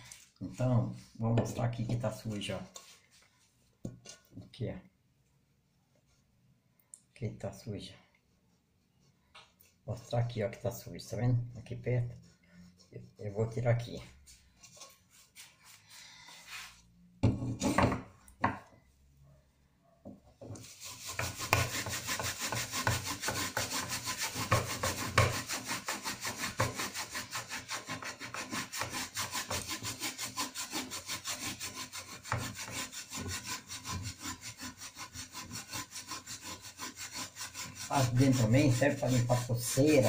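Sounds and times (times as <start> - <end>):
scrubbing a metal pan: 20.6 - 40.0.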